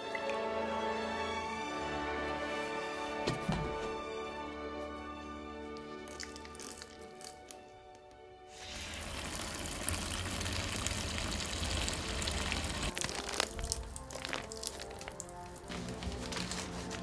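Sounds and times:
background music: 0.0 - 17.0
water rushing from hose: 8.5 - 15.7.

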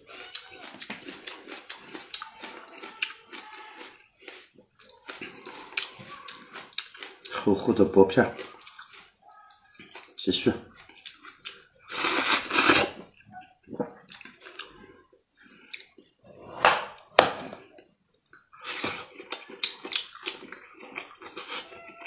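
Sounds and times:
person slurping and lip-smacking: 0.0 - 7.4, 10.9 - 14.9, 18.4 - 22.0
smacking chews: 0.0 - 16.1, 17.0 - 22.0.

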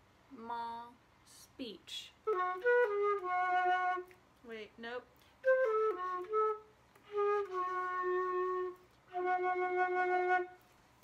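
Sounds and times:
solo flute playing: 2.2 - 4.2, 5.4 - 10.8.

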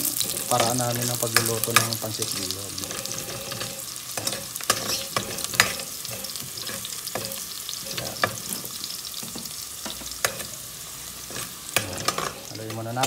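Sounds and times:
onion and garlic sizzling in oil: 0.0 - 13.0
metal spatula scraping pot: 2.8 - 9.3, 11.2 - 13.0.

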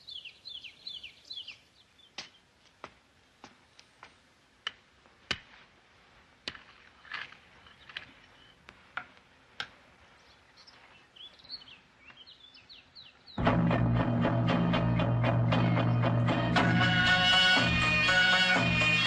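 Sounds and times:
faint bird chirps: 0.0 - 2.5.

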